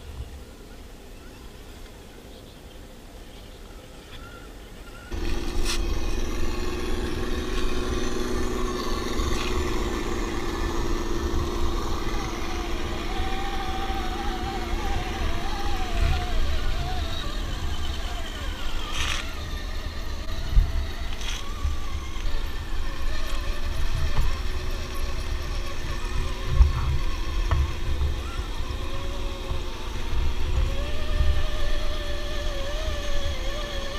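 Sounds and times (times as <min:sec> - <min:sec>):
wavering motor whine: 0:03.8 - 0:33.9
steady hum: 0:05.1 - 0:33.9
low rumble on microphone: 0:23.7 - 0:33.4.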